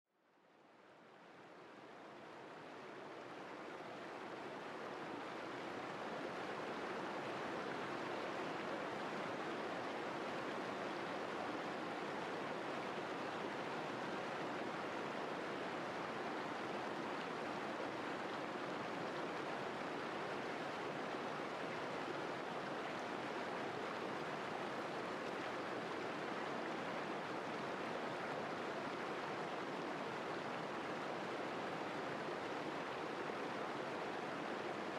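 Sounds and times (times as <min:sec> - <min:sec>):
stream rushing over rocks: 0:01.3 - 0:34.9.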